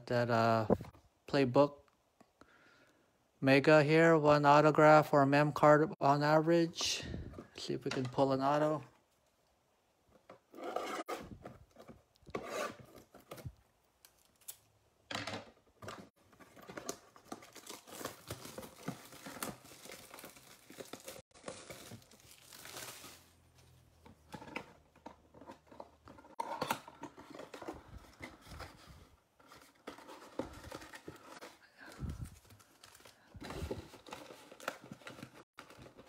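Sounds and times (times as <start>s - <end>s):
plastic wrapping crinkling: 16.4s - 23.4s.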